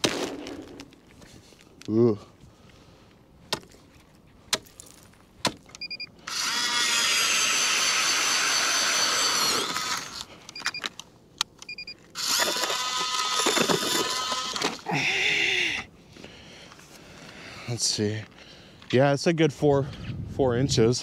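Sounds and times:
electric ice auger motor: 6.3s - 10.3s, 12.2s - 14.8s.

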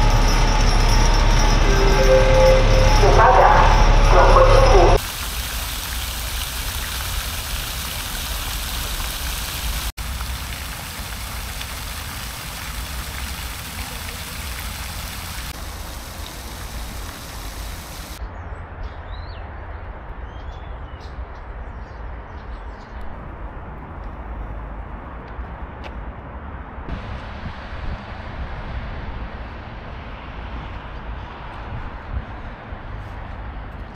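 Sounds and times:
distant traffic rumble: 0.0s - 18.2s
wind on microphone: 26.9s - 29.8s, 31.0s - 33.0s.

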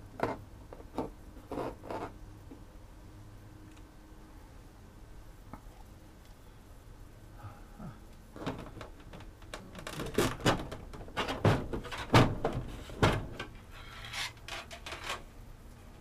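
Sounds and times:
plastic knocks and scrapes: 8.4s - 15.2s.

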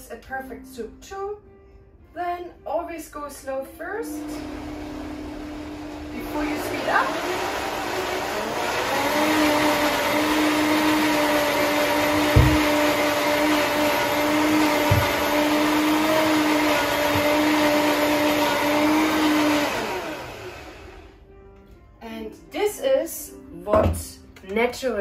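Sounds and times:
blender motor running: 4.1s - 21.2s
low thuds: 12.2s - 12.9s.

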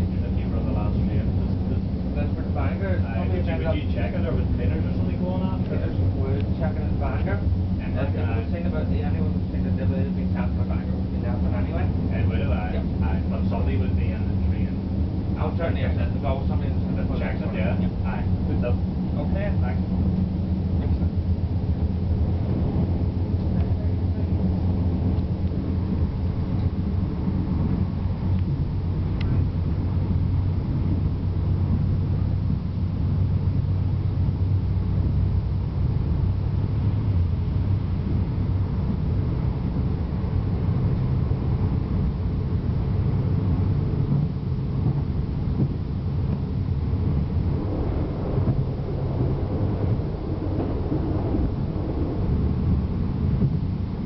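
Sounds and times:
diesel train engine rumble: 0.0s - 54.0s
train wheels on rails: 15.3s - 54.0s.

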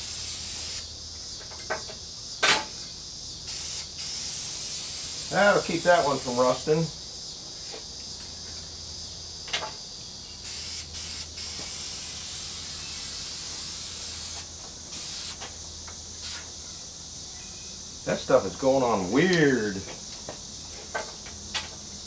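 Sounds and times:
spray-paint can hissing: 0.0s - 0.9s, 3.5s - 6.6s, 10.4s - 15.5s, 16.2s - 16.5s.

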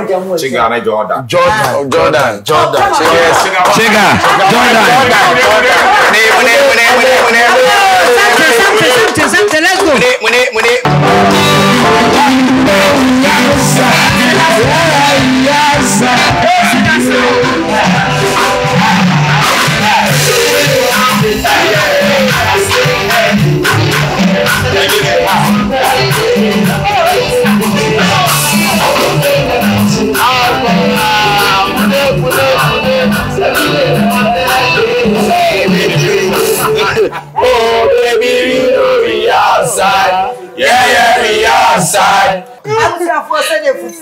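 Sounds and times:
keyboard: 1.5s - 42.2s
guitar: 10.8s - 41.3s
person singing: 10.9s - 42.1s.

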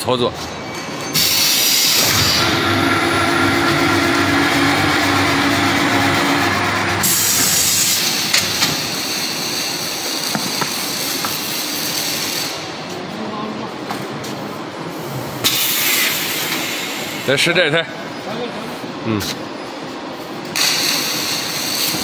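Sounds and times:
tyre-cutting machine running: 1.1s - 9.7s.

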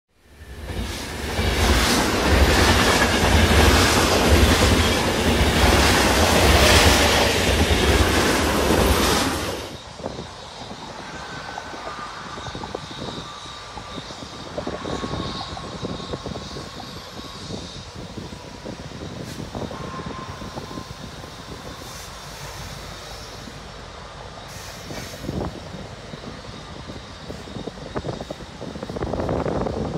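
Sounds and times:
road traffic: 0.1s - 29.9s
wind: 0.1s - 29.9s
train wheels clattering on rails: 0.6s - 10.8s.

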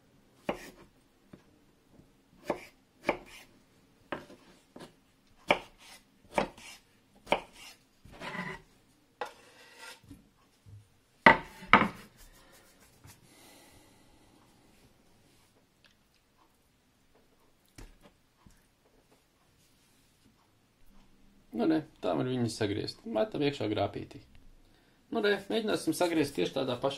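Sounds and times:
knife scrape: 0.5s - 0.9s, 2.4s - 3.5s, 5.5s - 10.0s.

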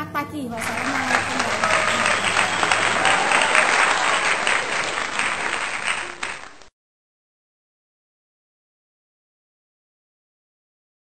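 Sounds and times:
crowd applause: 0.5s - 6.7s.

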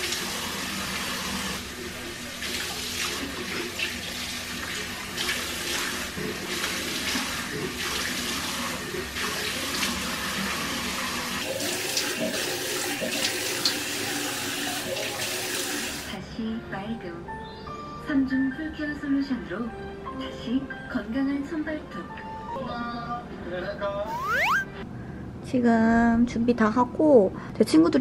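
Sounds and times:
tap water splashing into sink: 11.4s - 15.9s.

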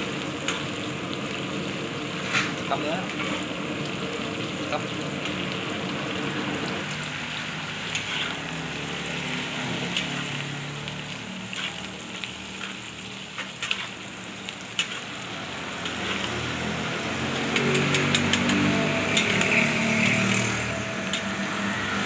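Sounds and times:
cabbage sizzling in hot oil: 0.0s - 22.0s
metal spatula scraping wok: 2.1s - 3.6s, 7.5s - 10.6s, 11.3s - 22.0s.

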